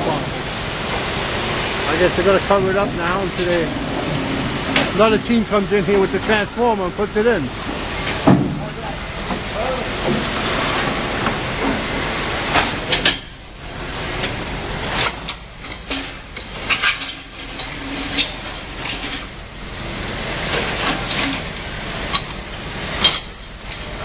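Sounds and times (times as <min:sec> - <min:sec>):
running machinery hiss: 0:00.0 - 0:24.0
metal clanks and clinks: 0:14.2 - 0:19.4, 0:20.5 - 0:24.0.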